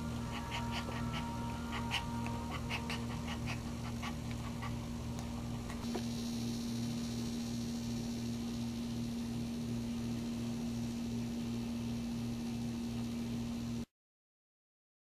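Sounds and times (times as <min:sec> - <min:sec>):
low hum: 0:00.0 - 0:13.9
dog panting: 0:00.2 - 0:05.8.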